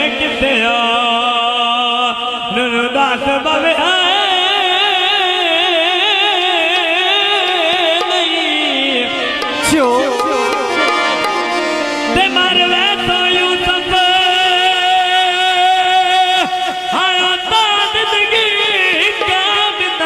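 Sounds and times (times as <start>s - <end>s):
man singing with vibrato: 0.0s - 20.0s
harmonium chords: 8.0s - 16.9s.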